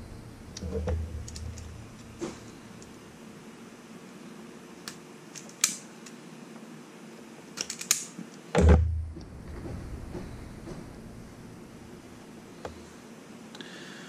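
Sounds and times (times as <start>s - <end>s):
heavy thump: 8.6s - 11.1s.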